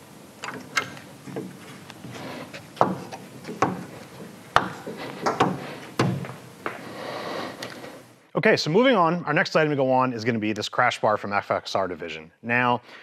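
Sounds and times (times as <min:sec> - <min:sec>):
wrench clicking and knocking on metal: 0:02.8 - 0:06.1.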